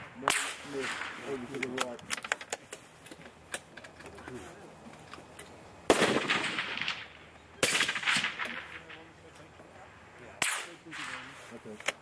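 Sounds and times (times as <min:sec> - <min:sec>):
rifle shots echoing: 0:00.0 - 0:02.3, 0:05.9 - 0:09.2, 0:09.8 - 0:11.5.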